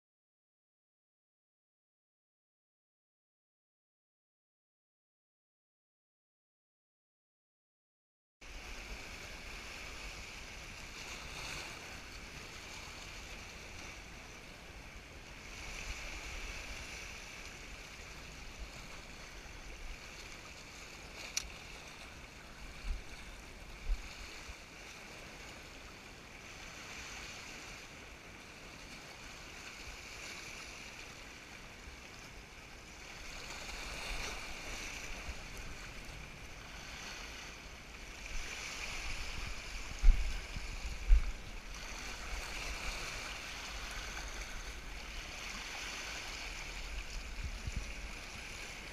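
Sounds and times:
wind rumbling on microphone: 8.4s - 25.7s, 32.8s - 48.9s
sea swell sloshing over rocks: 8.4s - 48.9s.

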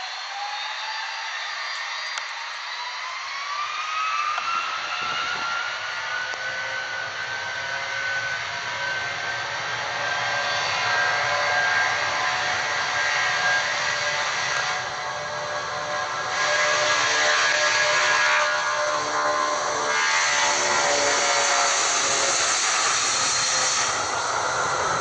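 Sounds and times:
jet engines whining: 0.0s - 25.0s
jet roar: 0.0s - 25.0s.

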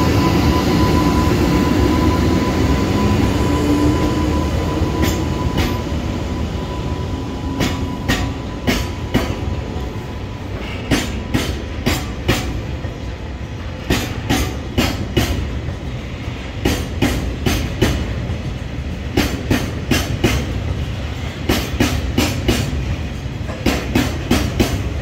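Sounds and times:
low rumble of train: 0.0s - 25.0s
train wheels clacking over rail joint: 5.0s - 5.8s, 7.5s - 9.5s, 10.5s - 13.0s, 13.6s - 25.0s.

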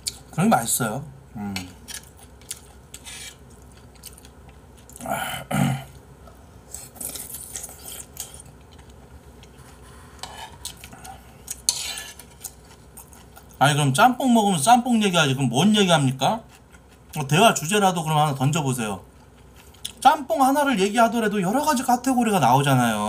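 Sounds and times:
chewing: 1.6s - 5.1s, 5.8s - 13.6s, 16.4s - 17.2s, 19.0s - 20.0s
metal spoon scraping bowl: 2.9s - 3.4s, 10.2s - 10.6s, 11.7s - 12.4s.

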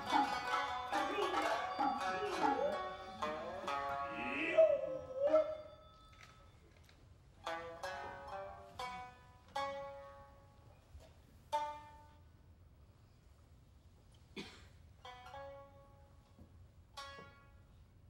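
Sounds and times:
shamisen plucked notes: 0.0s - 5.9s, 7.4s - 10.7s, 11.5s - 12.3s, 15.0s - 16.2s, 17.0s - 17.8s.

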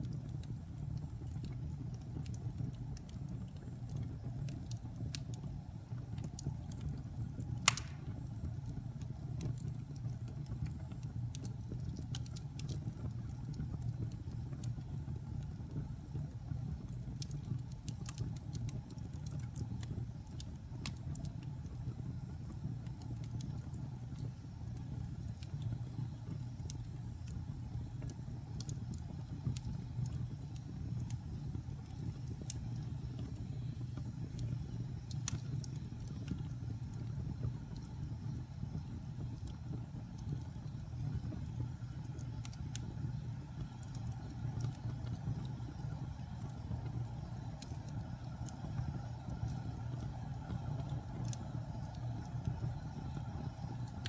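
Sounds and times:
fire crackling: 0.0s - 54.0s
fire rumbling: 0.0s - 54.0s
loud pop: 7.7s - 8.1s.

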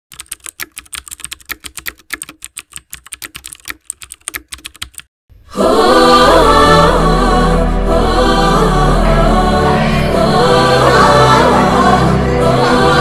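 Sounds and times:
keyboard typing clicks: 0.1s - 5.1s
loud music with choir singing: 5.5s - 13.0s.

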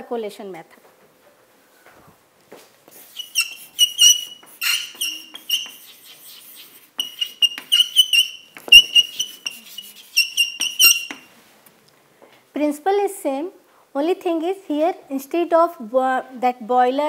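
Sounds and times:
chalk squeaking on blackboard: 2.9s - 11.3s.

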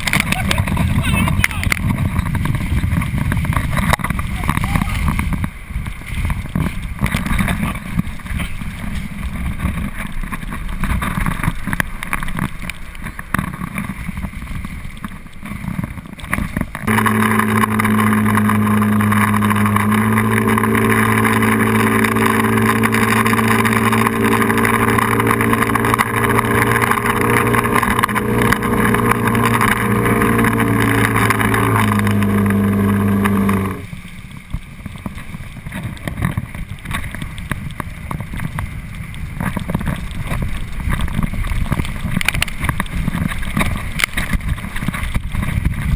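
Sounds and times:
outboard motor running: 0.0s - 45.9s
rushing water: 0.0s - 45.9s
wind buffeting camera: 0.0s - 45.9s.

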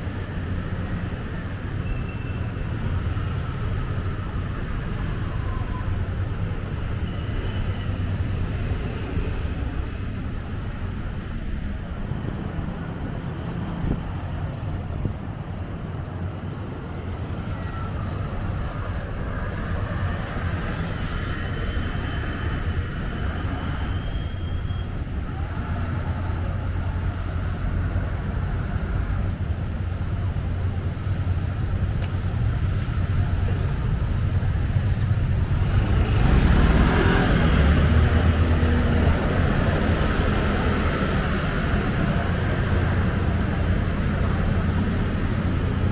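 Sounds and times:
rumble of passing cars: 0.0s - 45.9s
heavy vehicle engine passing: 24.9s - 45.9s.

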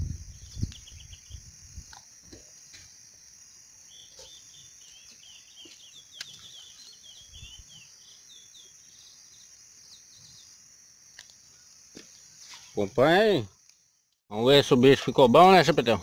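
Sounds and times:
high insect drone: 0.0s - 16.0s
small bird twittering: 0.2s - 1.5s, 3.9s - 10.6s.

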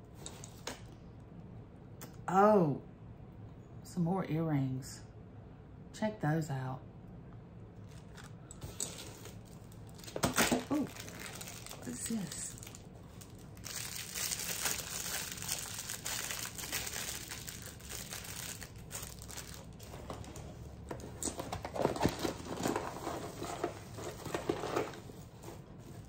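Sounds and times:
paper and packaging crinkling: 7.8s - 26.0s.

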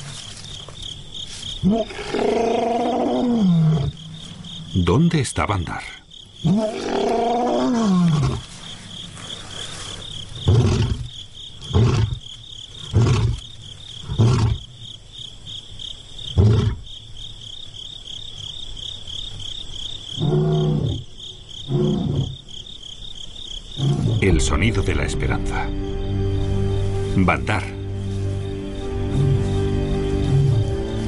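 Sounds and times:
insect trill: 0.0s - 31.0s
lion roaring: 1.6s - 4.0s, 6.4s - 8.6s, 10.4s - 12.2s, 20.2s - 21.0s, 21.7s - 22.4s, 23.8s - 24.2s.

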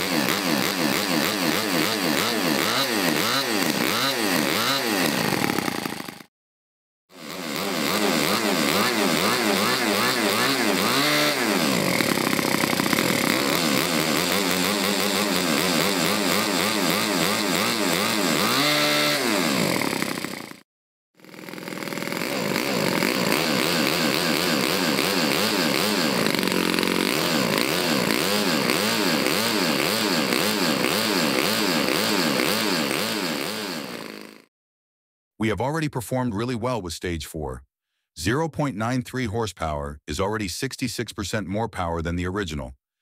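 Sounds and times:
model engine running at high speed: 0.0s - 6.3s, 7.1s - 20.6s, 21.2s - 34.5s.

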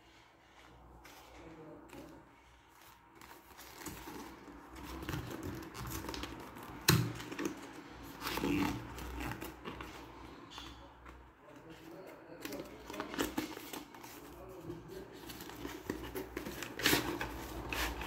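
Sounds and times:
cardboard rustling and scraping: 0.0s - 18.0s.

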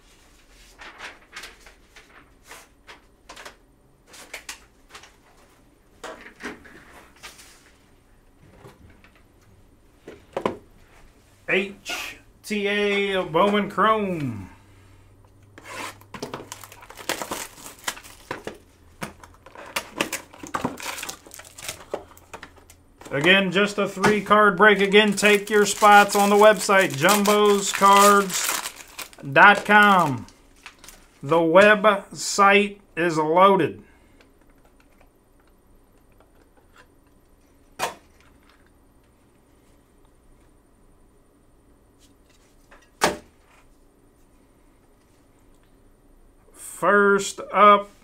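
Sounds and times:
foil wrapper crinkling: 16.2s - 18.6s, 19.2s - 31.3s.

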